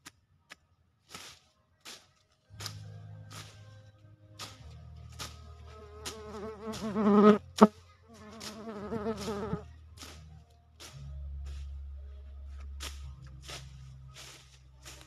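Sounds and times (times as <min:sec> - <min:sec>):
fly buzzing: 0:05.7 - 0:09.6.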